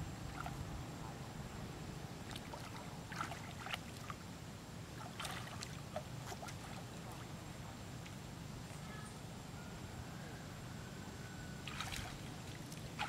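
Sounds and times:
low steady rumble: 0.0 - 13.0
water splashing: 2.2 - 4.3, 4.9 - 8.2, 11.6 - 13.0.

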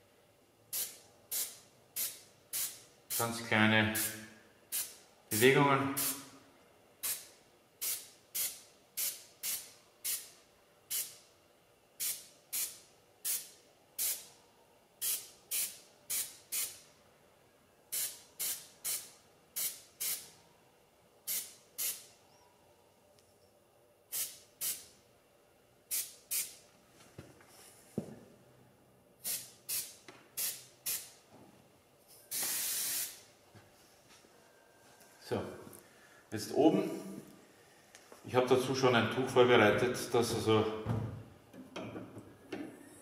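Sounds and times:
airbrush hissing in short bursts: 0.7 - 3.3, 4.0 - 5.0, 6.0 - 6.3, 7.0 - 11.2, 12.0 - 14.4, 15.0 - 16.8, 17.9 - 20.3, 21.3 - 22.1, 24.1 - 24.9, 25.9 - 26.6, 29.2 - 31.2, 32.3 - 33.3.

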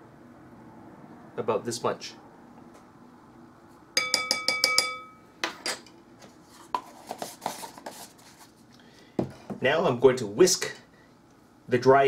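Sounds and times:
spoon tapping bowl rim: 4.0 - 5.2.

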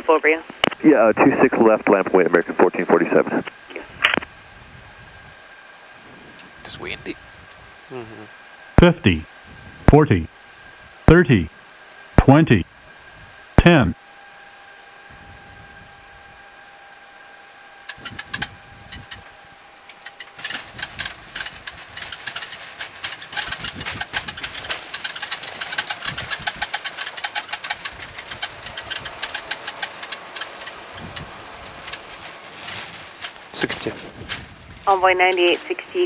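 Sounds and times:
faint steady hum: 0.0 - 36.0
cockpit rattling and knocking: 19.9 - 32.2.

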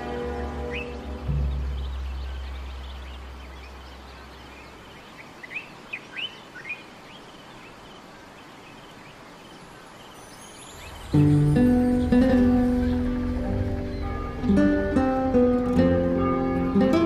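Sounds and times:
low musical drone: 0.0 - 4.1, 10.8 - 17.0
outdoor ambience: 0.0 - 17.0.

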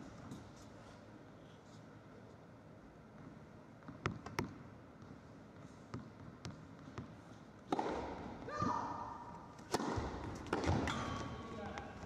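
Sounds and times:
tennis ball bouncing: 7.7 - 8.4, 9.6 - 11.3.

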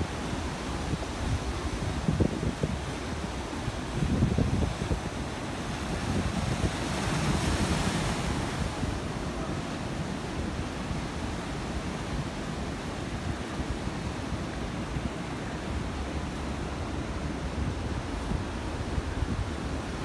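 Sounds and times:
ocean surf on rocky shore: 0.0 - 20.0
wind buffeting microphone: 0.9 - 9.3, 13.1 - 20.0.

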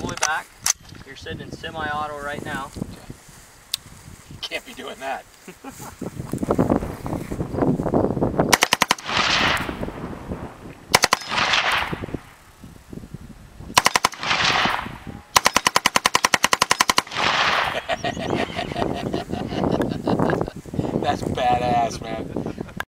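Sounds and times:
automatic rifle fire: 8.5 - 9.8, 10.9 - 12.1, 13.8 - 17.8
gunfire echo: 8.5 - 10.0, 10.9 - 12.3, 13.8 - 17.9.

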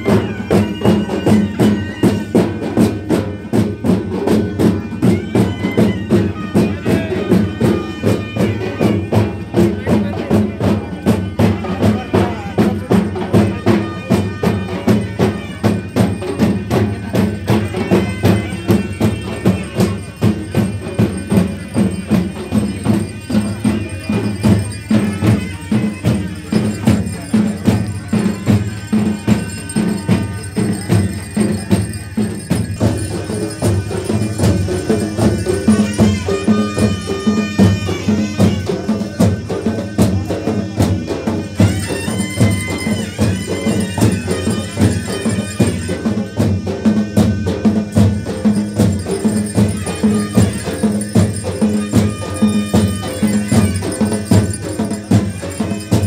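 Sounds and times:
folk drums and tambourine: 0.0 - 56.0
high held melody line: 13.6 - 56.0.

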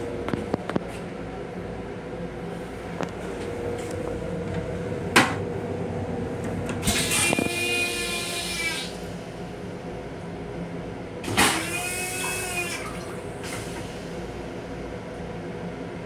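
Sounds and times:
toilet flushing whoosh: 6.8 - 9.4, 11.2 - 14.4.

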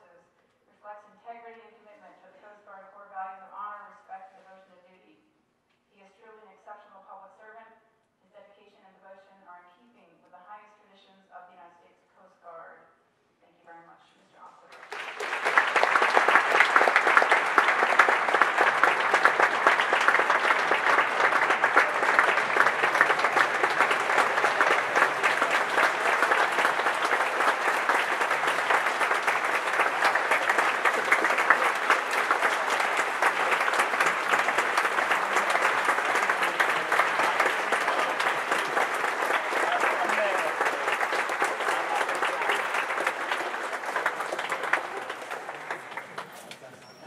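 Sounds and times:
audience applauding: 14.7 - 47.0.

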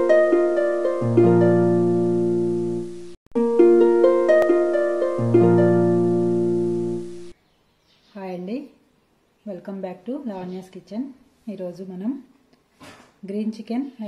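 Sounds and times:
harp-like plucked string tune: 0.0 - 7.3.

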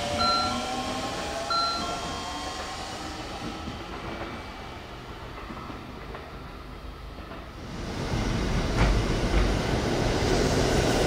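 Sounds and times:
train standing background noise: 0.0 - 11.0
electronic two-note chime: 0.2 - 0.8, 1.5 - 2.3.

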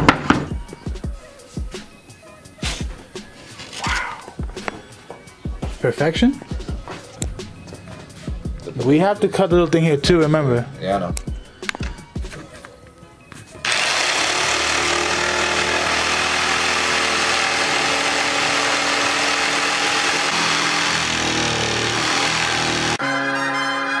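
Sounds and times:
electric jigsaw cutting wood: 13.6 - 23.0
music with brass instruments: 23.0 - 24.0.

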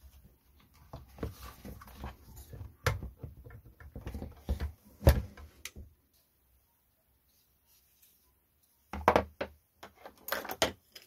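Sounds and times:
plastic parts clicking and knocking: 0.8 - 5.8, 8.9 - 11.0.

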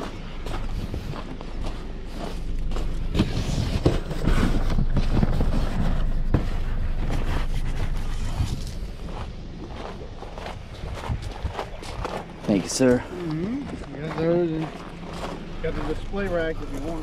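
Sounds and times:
cardboard boxes rubbing and scuffing: 2.2 - 8.8.

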